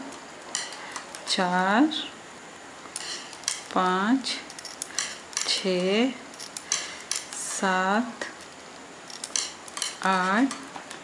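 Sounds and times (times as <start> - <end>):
metal knitting needles clicking: 3.0 - 3.7, 9.1 - 10.6.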